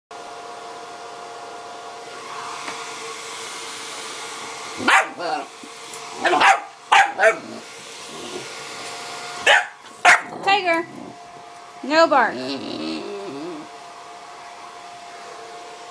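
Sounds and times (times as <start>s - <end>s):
hair dryer humming: 0.2s - 15.9s
puppy barking: 4.8s - 5.5s, 6.2s - 7.6s, 9.4s - 10.5s.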